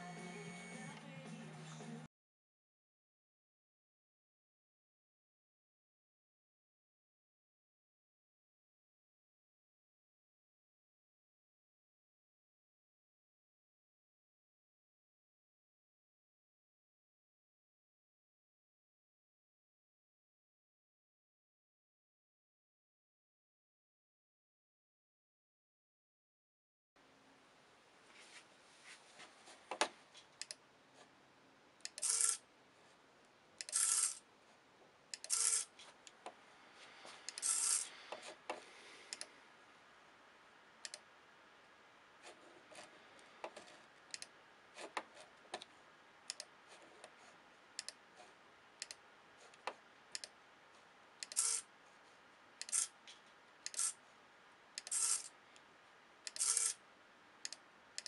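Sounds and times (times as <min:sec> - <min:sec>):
computer mouse clicking: 0:29.7 - 0:30.6, 0:31.8 - 0:32.4, 0:35.1 - 0:35.6, 0:37.3 - 0:38.3, 0:39.1 - 0:39.3, 0:40.8 - 0:41.0, 0:43.4 - 0:45.7, 0:46.3 - 0:47.2, 0:47.8 - 0:48.0, 0:48.8 - 0:50.4, 0:51.2 - 0:51.6, 0:52.6 - 0:52.9, 0:53.6 - 0:53.9, 0:54.8 - 0:55.3, 0:56.2 - 0:56.8
servo whirring: 0:33.6 - 0:34.2, 0:37.3 - 0:37.9, 0:54.8 - 0:55.3.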